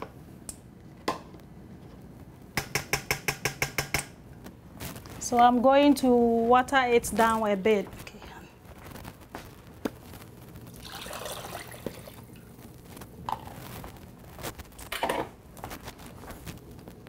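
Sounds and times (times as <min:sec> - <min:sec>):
bowls and utensils knocking: 0:02.6 - 0:04.1
water poured into bowl: 0:10.7 - 0:12.4.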